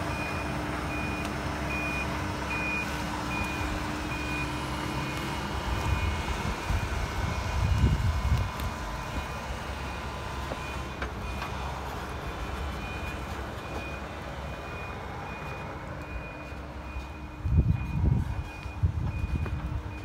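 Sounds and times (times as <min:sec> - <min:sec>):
excavator diesel engine rumbling: 0:00.0 - 0:20.0
high-pitched alarm beeping: 0:00.1 - 0:05.2, 0:12.1 - 0:20.0.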